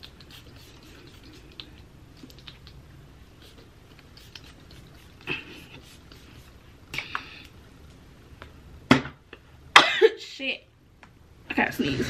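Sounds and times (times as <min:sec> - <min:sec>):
hair rustling: 0:00.0 - 0:07.1.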